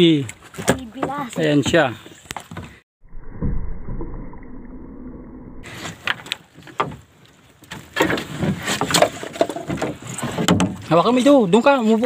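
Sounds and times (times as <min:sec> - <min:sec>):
knocks and clatter from boat: 0:00.3 - 0:02.8, 0:06.0 - 0:12.0.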